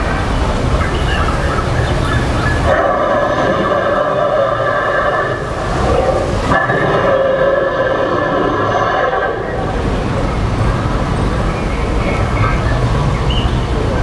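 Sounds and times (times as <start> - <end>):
dinosaur roar through speakers: 2.0 - 9.8.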